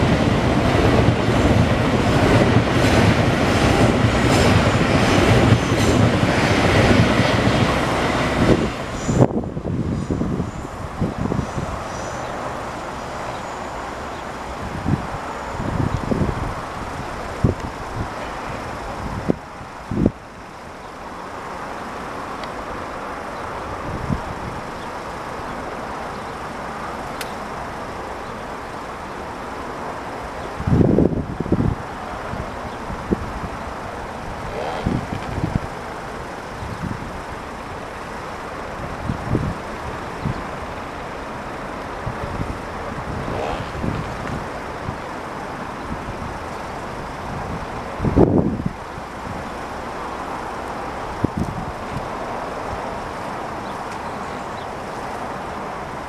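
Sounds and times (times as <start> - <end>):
road traffic: 0.0 - 56.0
wind thumps on microphone: 34.2 - 35.8, 42.1 - 44.5.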